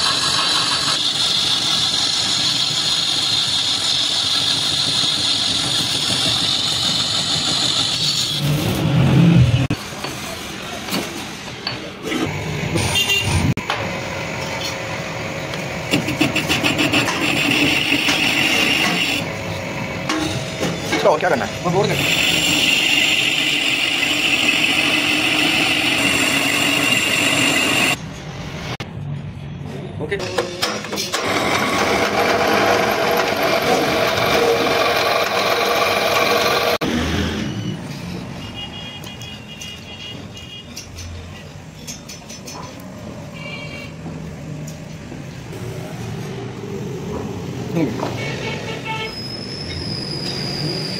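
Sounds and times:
metal lathe running: 15.5s - 20.2s, 21.0s - 28.0s, 31.1s - 36.8s
harsh rasping cut with whine: 15.9s - 19.3s, 21.7s - 28.0s, 31.2s - 37.0s
drill press drilling steel: 16.0s - 19.3s, 21.7s - 28.0s, 31.1s - 36.8s
high squeaks: 48.8s - 50.9s.

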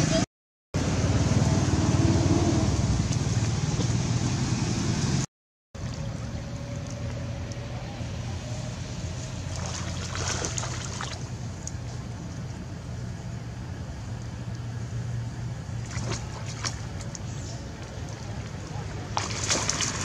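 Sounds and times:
low engine hum: 0.8s - 20.0s
water splashing: 5.8s - 7.8s, 9.1s - 11.9s, 15.7s - 20.0s.

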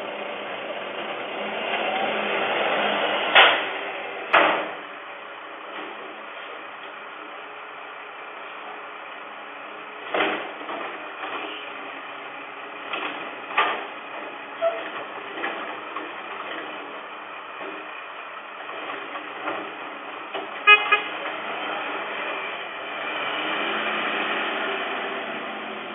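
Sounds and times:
garbage truck mechanical running: 0.0s - 25.9s
loud metallic clanks and bangs: 3.3s - 4.9s.

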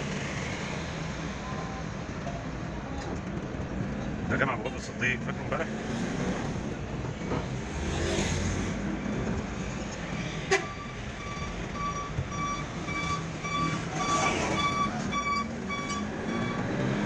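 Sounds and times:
car engine and road noise: 0.0s - 17.0s
repeating electronic beep: 10.7s - 17.0s.

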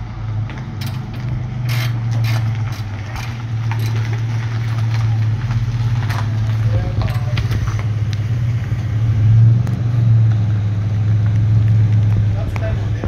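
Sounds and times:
engine humming: 0.0s - 13.0s.

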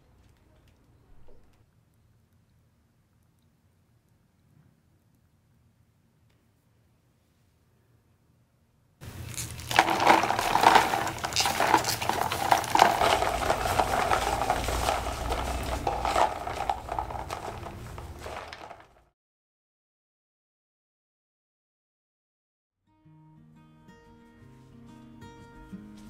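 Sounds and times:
ice cubes clinking in plastic tub: 9.0s - 19.1s
water sloshing: 9.6s - 19.0s.

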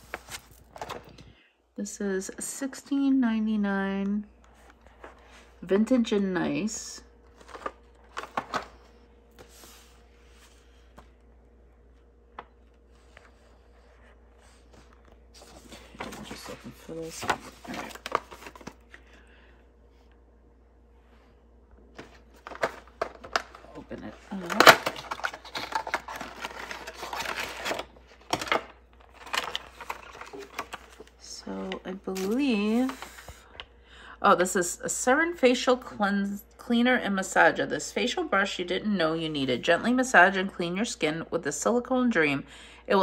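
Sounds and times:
plastic and paper crinkling: 0.0s - 1.3s, 7.3s - 9.9s, 12.4s - 19.1s, 22.0s - 33.5s
cardboard rustle: 24.3s - 31.2s.

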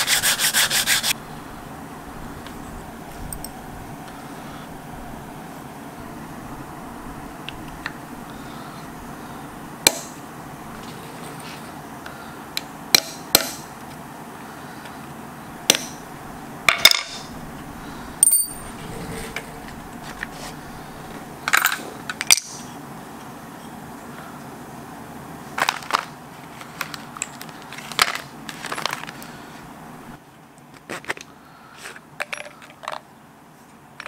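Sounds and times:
tools clinking on steel workbench: 18.2s - 18.7s.

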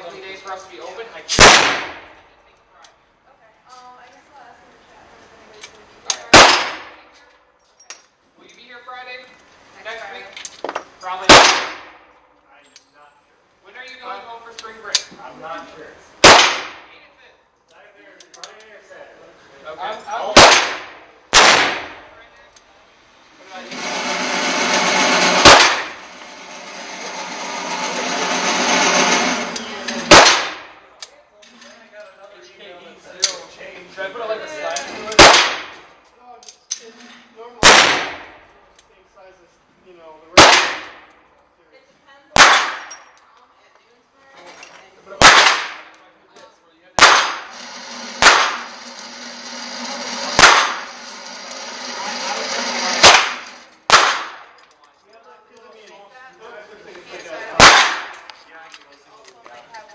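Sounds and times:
revolver gunshot with echo: 1.3s - 2.1s, 6.3s - 7.0s, 11.3s - 12.0s, 16.2s - 16.9s, 20.4s - 22.1s, 25.4s - 26.0s, 30.0s - 30.8s, 37.6s - 38.3s, 45.2s - 45.9s, 47.0s - 47.5s, 48.2s - 48.7s, 50.4s - 50.8s, 53.0s - 54.5s, 57.6s - 58.2s
motorized target carrier whirring: 23.4s - 30.1s, 47.4s - 53.9s
gunshots echoing indoors: 30.1s - 30.8s.

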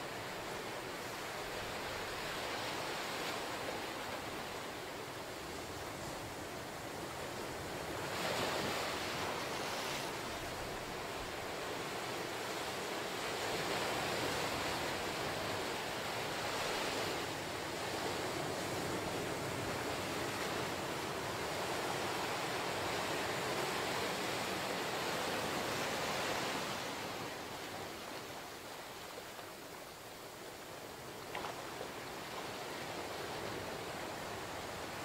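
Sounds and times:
ocean surf on beach: 0.0s - 35.0s.

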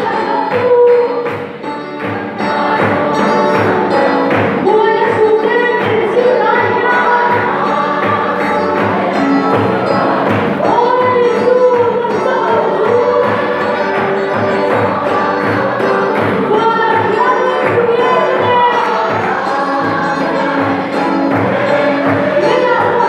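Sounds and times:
group singing a hymn: 0.0s - 23.0s
steady drum beat: 12.5s - 23.0s.

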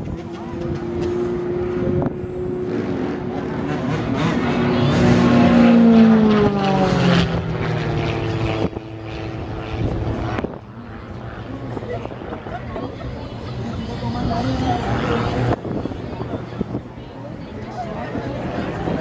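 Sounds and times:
propeller plane engine droning: 0.0s - 19.0s.

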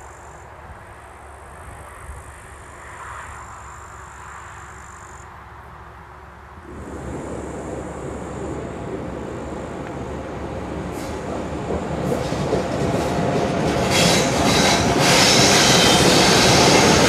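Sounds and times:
freight train rumble: 6.5s - 17.0s.

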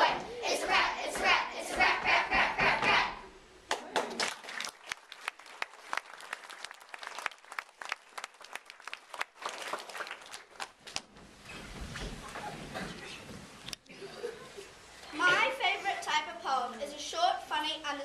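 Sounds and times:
scattered applause: 3.7s - 11.0s.

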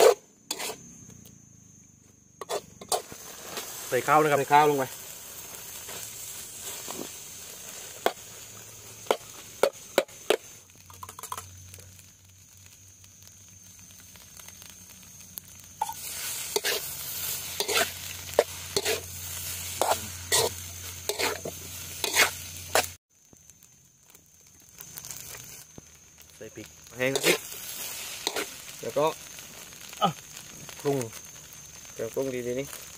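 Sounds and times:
metal spatula scraping a wok: 0.0s - 0.8s, 2.4s - 4.0s, 15.9s - 23.0s, 27.1s - 28.7s
food sizzling: 0.0s - 1.0s, 2.3s - 32.9s.

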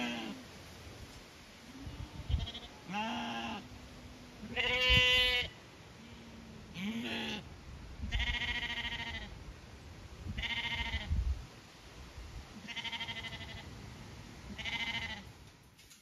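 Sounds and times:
lambs bleating: 0.0s - 0.4s, 1.8s - 3.6s, 4.4s - 5.6s, 6.8s - 7.5s, 8.1s - 9.3s, 10.4s - 11.1s, 12.6s - 13.7s, 14.5s - 15.3s.

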